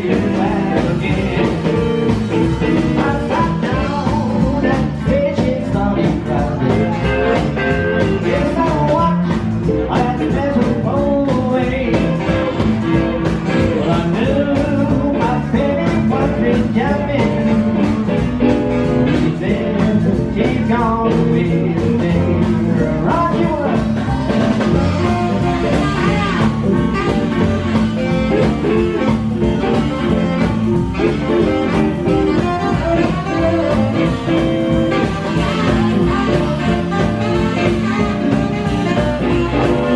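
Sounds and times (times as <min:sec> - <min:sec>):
live swing blues band: 0:00.0 - 0:39.9
saxophone: 0:00.0 - 0:39.9.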